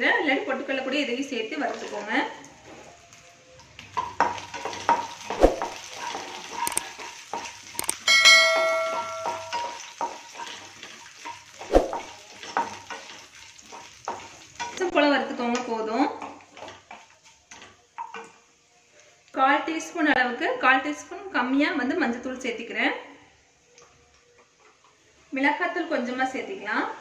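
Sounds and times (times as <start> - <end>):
light sizzling in pan: 0.0 - 27.0
spatula and nuts knocking pan: 4.0 - 14.9
ringing chime: 7.8 - 9.8.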